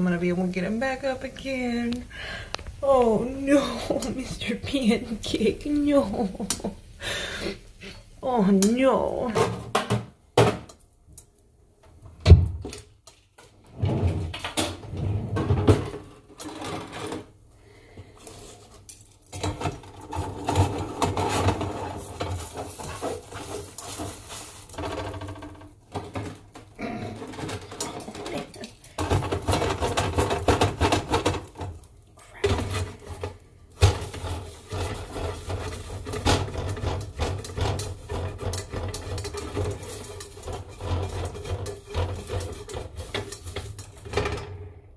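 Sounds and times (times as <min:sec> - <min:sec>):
metal spatula scraping frying pan: 0:19.4 - 0:31.8, 0:32.4 - 0:44.5.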